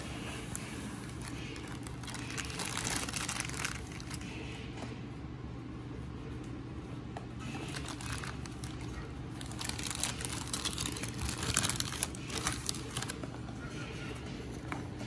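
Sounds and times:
plastic bags crinkling: 0.3 - 4.3, 7.4 - 13.3.

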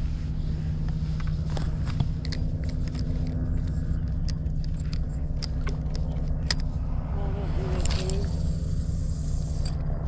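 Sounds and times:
faint hum: 0.0 - 10.0
steady low rumble: 0.0 - 10.0
fishing tackle clicking: 2.0 - 6.7.

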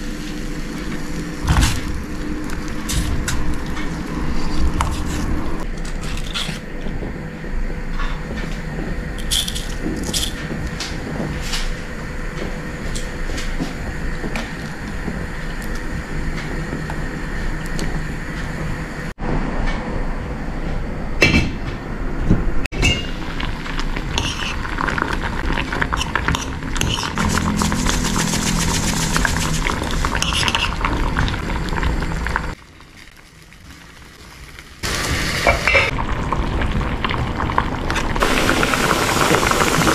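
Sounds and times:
broth boiling in a pan: 0.0 - 5.7, 22.8 - 39.9.

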